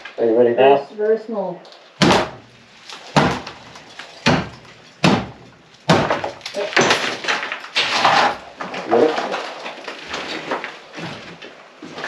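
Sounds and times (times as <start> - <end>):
sledgehammer hitting plaster wall: 2.0 - 8.4
falling plaster and lath: 2.0 - 12.0.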